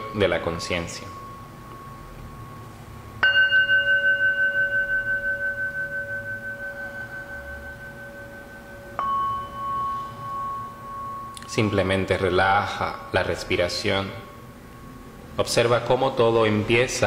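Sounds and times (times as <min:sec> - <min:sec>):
high singing bowl struck: 0:00.0 - 0:13.5
low singing bowl ringing: 0:00.0 - 0:15.4.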